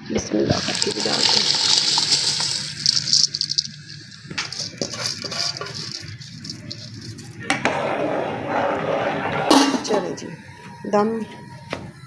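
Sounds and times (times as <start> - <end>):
rice pouring into water hiss: 0.5 - 7.3
rice grains ticking on steel bowl: 0.5 - 7.4.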